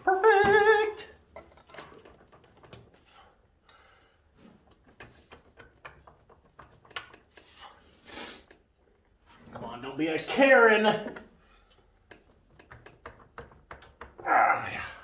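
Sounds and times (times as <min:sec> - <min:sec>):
light metallic clicks and taps: 0:11.7 - 0:14.2.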